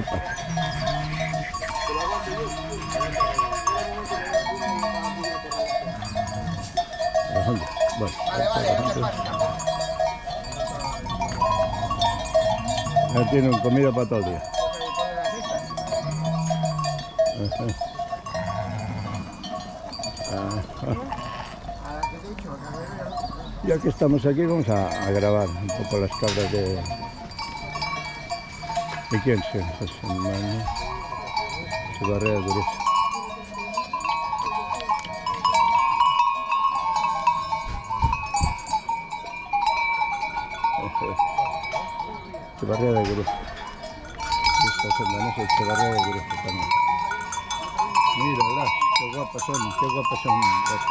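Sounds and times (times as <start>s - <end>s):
sheep bleating: 0.0s - 7.6s, 18.3s - 19.6s, 20.5s - 21.7s
sheep bells clinking: 0.0s - 50.9s.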